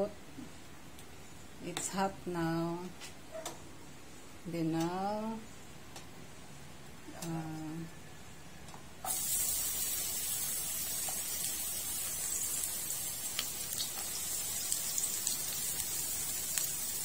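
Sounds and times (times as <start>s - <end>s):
garlic sizzling in hot oil: 9.1s - 17.0s.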